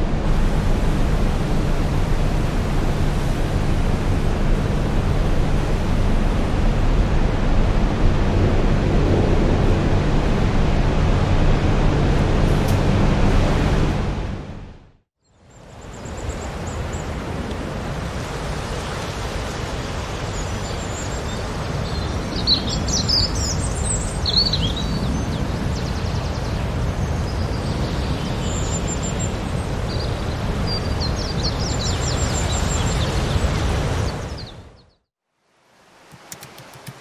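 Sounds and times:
low rumble of noise: 0:00.0 - 0:15.1
birds chirping: 0:19.9 - 0:35.0.

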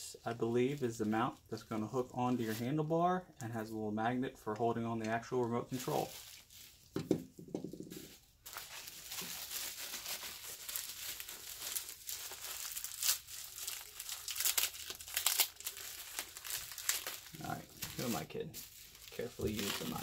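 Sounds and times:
plastic bag crinkling: 0:05.7 - 0:07.0, 0:07.9 - 0:20.0.

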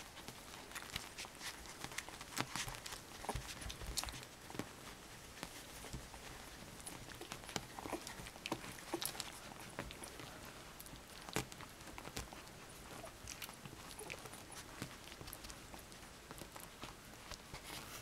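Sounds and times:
puppies suckling smacking: 0:00.0 - 0:18.0.

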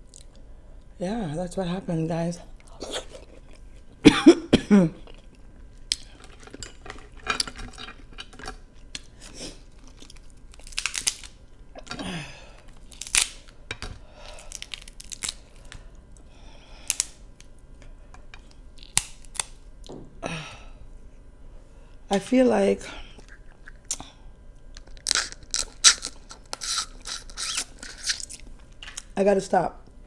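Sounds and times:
chewing: 0:02.6 - 0:04.0, 0:23.2 - 0:24.0
crab shell cracking: 0:05.0 - 0:15.9, 0:16.8 - 0:17.6, 0:18.4 - 0:19.6, 0:23.2 - 0:29.1.

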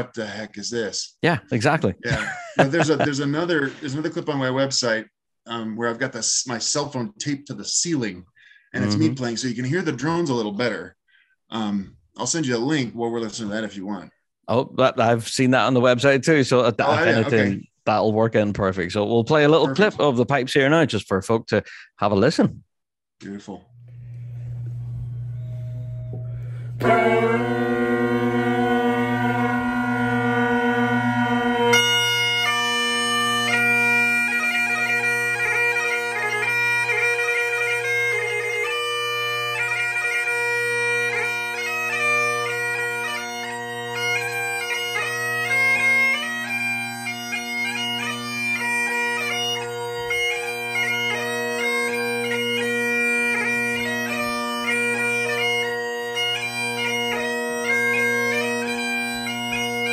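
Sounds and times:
bagpipe chanter tune: 0:16.8 - 0:17.6, 0:23.8 - 0:59.9
bagpipe drones humming: 0:16.8 - 0:17.6, 0:23.8 - 0:59.9.

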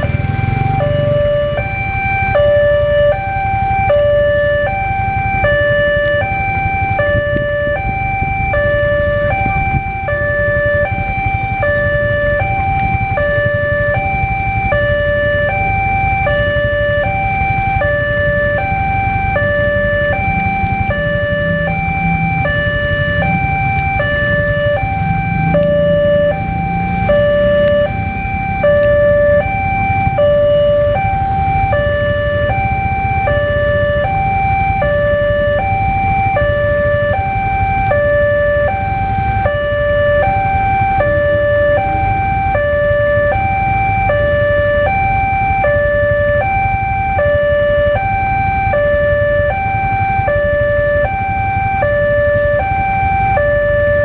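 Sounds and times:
road traffic engine noise: 0:00.0 - 0:54.0.

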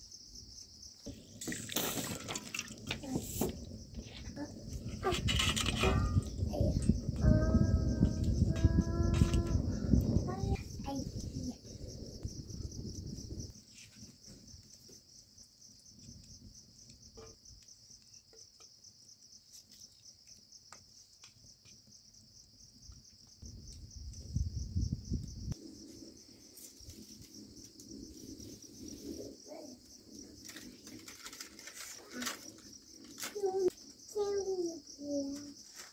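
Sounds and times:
insects trilling: 0:00.0 - 0:35.9
low rumble: 0:03.2 - 0:13.5.

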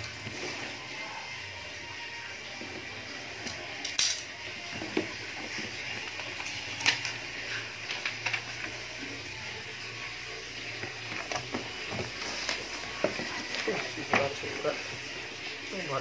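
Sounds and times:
paper manual handled: 0:10.8 - 0:15.0.

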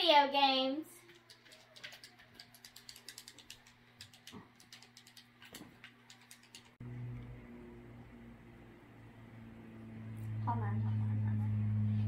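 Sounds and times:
game controller buttons clicking: 0:01.1 - 0:06.7.

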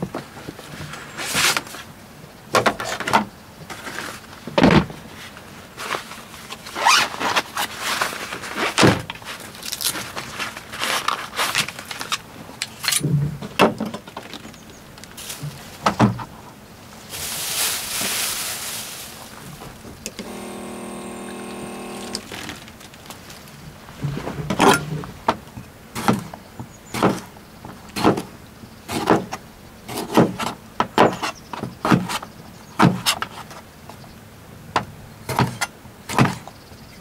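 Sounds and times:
steady hum: 0:19.3 - 0:22.6.

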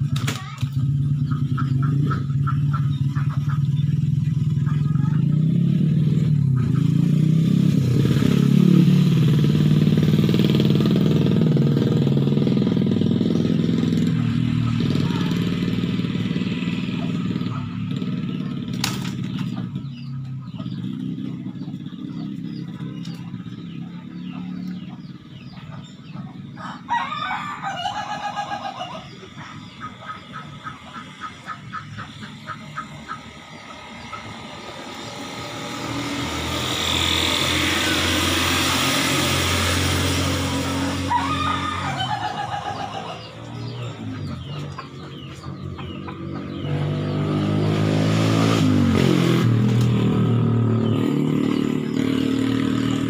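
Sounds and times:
vehicle engine running: 0:00.0 - 0:53.0
rooster crowing: 0:26.6 - 0:29.2, 0:40.8 - 0:43.4.

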